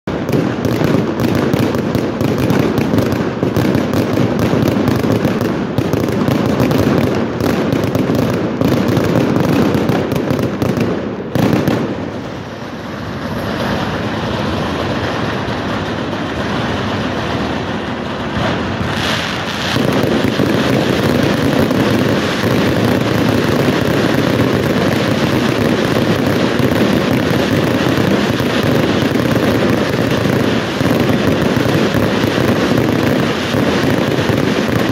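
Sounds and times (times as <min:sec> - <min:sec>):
fireworks bangs and crackling: 0:00.0 - 0:34.9
rushing hiss of firework fountains: 0:11.8 - 0:34.9.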